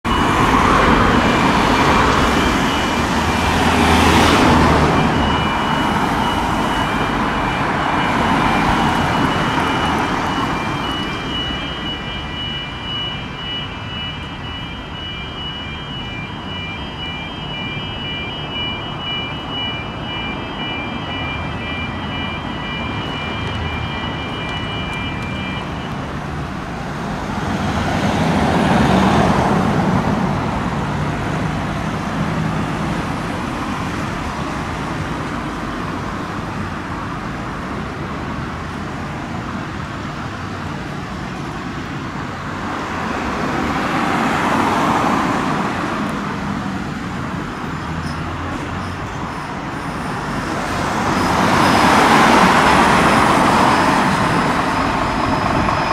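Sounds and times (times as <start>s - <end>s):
vehicles driving past: 0.0s - 55.9s
high-pitched tone: 0.1s - 26.2s, 49.8s - 55.9s.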